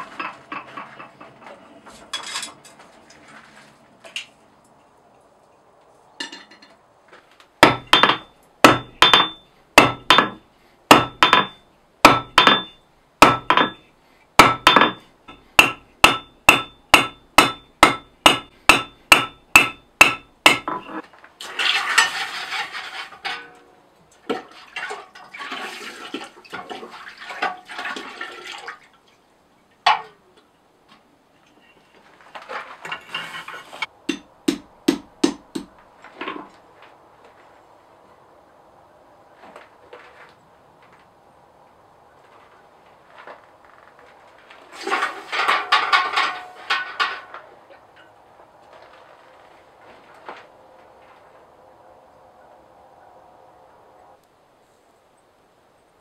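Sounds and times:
hammer striking steel on anvil: 0:07.6 - 0:13.8, 0:14.4 - 0:21.0.

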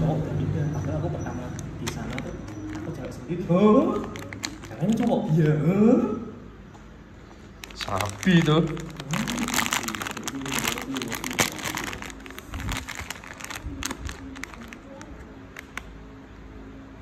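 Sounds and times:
plastic packet crinkling: 0:01.5 - 0:05.5, 0:07.6 - 0:16.0.

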